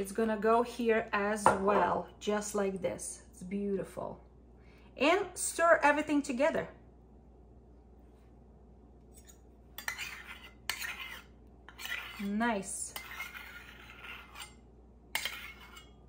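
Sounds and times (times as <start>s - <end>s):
spoon scraping and clinking: 9.1s - 16.0s.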